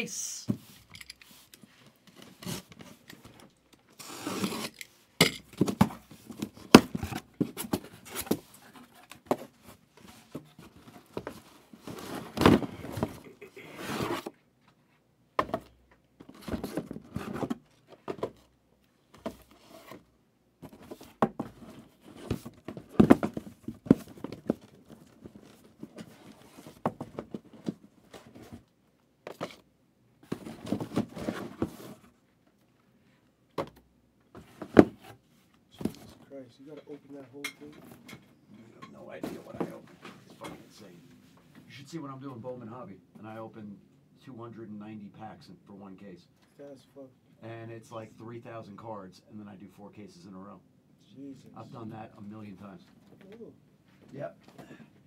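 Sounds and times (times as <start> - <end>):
cards crinkling and scraping: 1.0 - 5.0
card packs tearing: 4.0 - 4.8.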